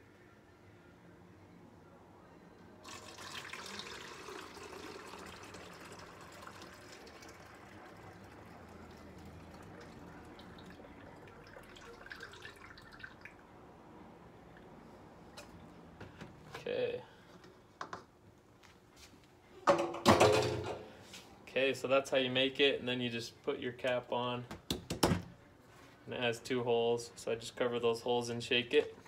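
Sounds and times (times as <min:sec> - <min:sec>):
liquid pouring into bottle: 0:02.8 - 0:13.4.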